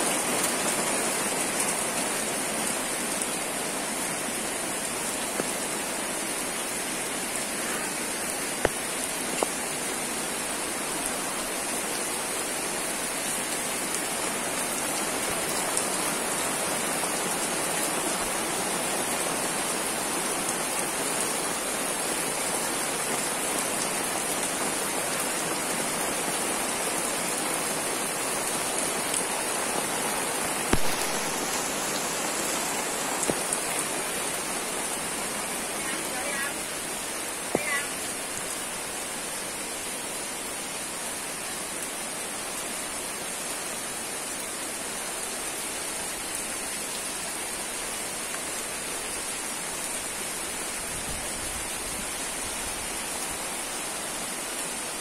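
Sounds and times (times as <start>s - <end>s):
steady rain falling: 0.0s - 55.0s.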